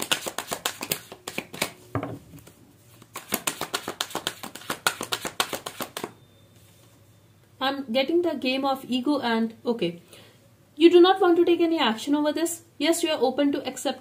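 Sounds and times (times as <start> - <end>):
cards being shuffled: 0.0 - 1.8, 2.4 - 6.1.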